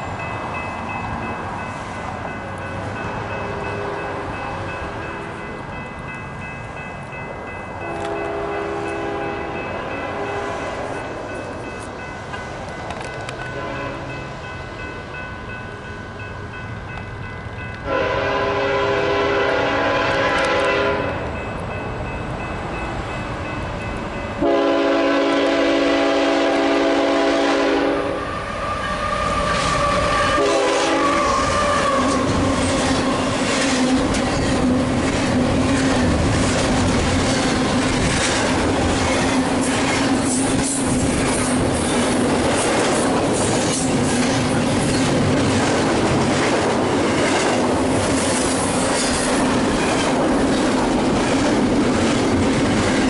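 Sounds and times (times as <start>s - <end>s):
freight train rolling past: 0.0s - 53.0s
locomotive air horn blasts: 7.9s - 10.6s, 13.4s - 14.1s, 17.8s - 21.2s, 24.4s - 32.3s
train wheels clicking over rail joints: 11.4s - 13.5s, 31.1s - 53.0s.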